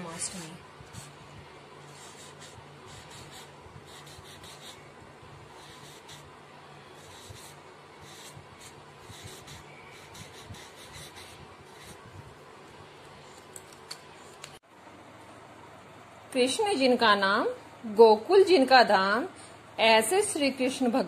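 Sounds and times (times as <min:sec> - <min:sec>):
marker pen scratching on card: 0:01.9 - 0:04.8, 0:05.6 - 0:06.3, 0:07.0 - 0:12.0.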